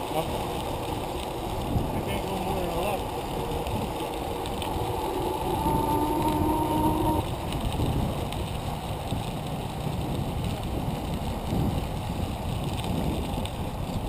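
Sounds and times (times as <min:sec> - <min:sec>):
wind rushing over microphone: 0:00.0 - 0:14.0
steady tone: 0:02.7 - 0:07.2.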